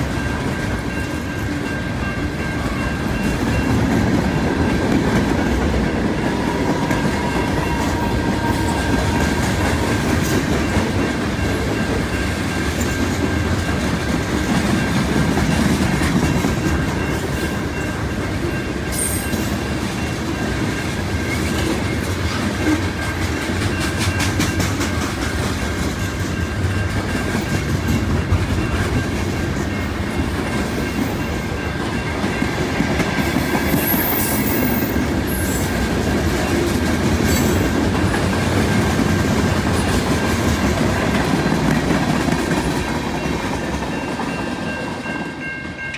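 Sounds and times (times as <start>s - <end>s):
freight train wheels rumbling: 0.0s - 45.9s.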